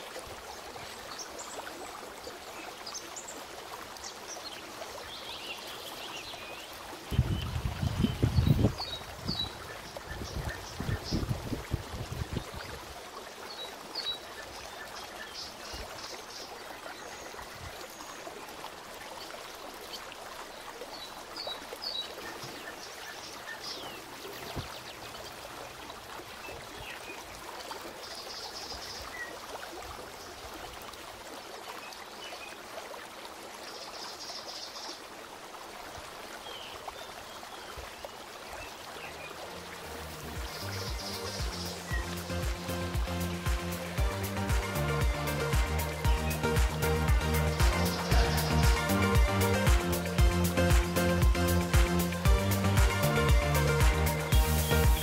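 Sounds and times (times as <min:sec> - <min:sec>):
trickle of running water: 0:00.0 - 0:55.0
bird chirps and trills: 0:44.6 - 0:52.2, 0:53.2 - 0:55.0.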